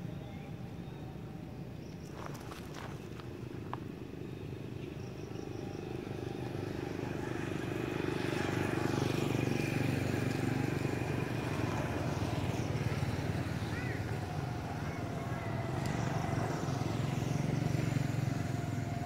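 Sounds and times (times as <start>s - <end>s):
vehicle engine rumbling: 10.4s - 19.0s.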